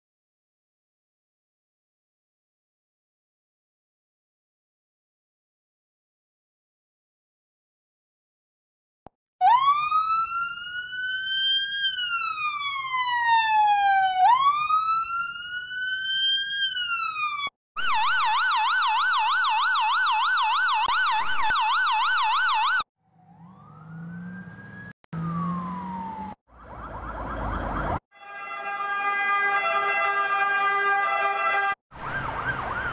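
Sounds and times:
fast warbling siren: 9.4 - 28.0, 30.9 - 32.9
ambulance siren wailing: 9.4 - 32.9.

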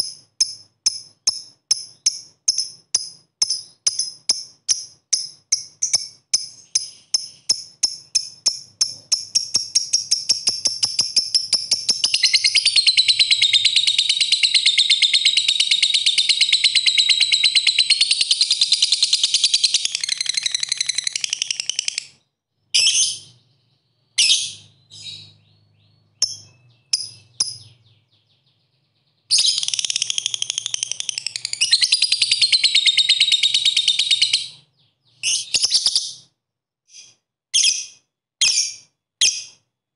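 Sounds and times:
lovebird chirps and trills: 0.0 - 36.3, 36.9 - 39.6.

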